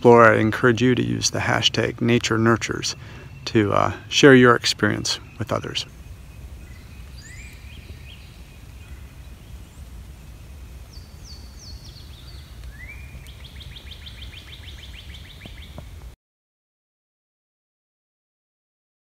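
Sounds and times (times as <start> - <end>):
steady low rumble: 0.0 - 13.8
songbirds singing: 0.0 - 16.2.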